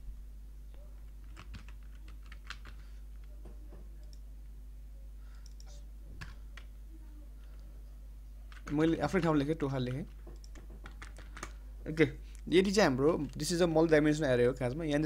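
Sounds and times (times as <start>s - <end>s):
computer keyboard typing: 1.1s - 3.4s, 8.5s - 11.6s.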